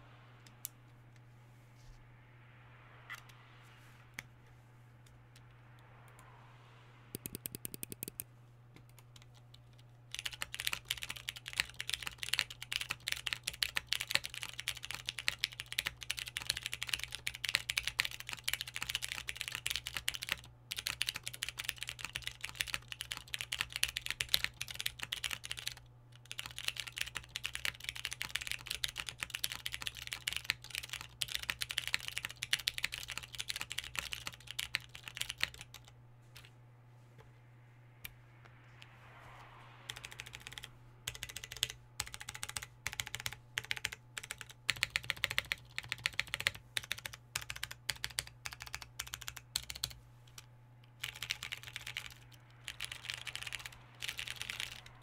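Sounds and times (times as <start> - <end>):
faint low hum: 0.0 - 55.0
mechanical keyboard typing: 7.2 - 8.2, 8.9 - 35.9, 39.9 - 55.0.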